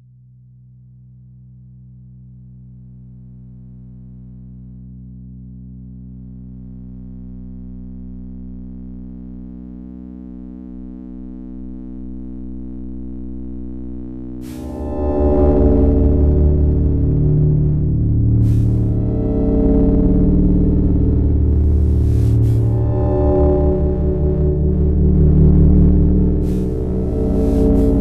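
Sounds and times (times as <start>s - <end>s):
synthesizer drone music: 14.4s - 28.0s.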